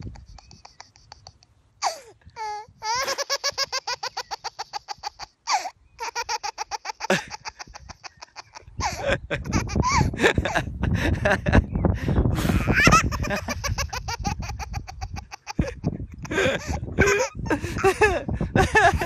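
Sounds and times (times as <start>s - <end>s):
adult laughing: 0.0s - 2.1s, 2.8s - 19.0s
baby laughing: 0.0s - 10.5s, 12.4s - 19.0s
low microphone rumble: 8.8s - 13.5s, 15.6s - 19.0s.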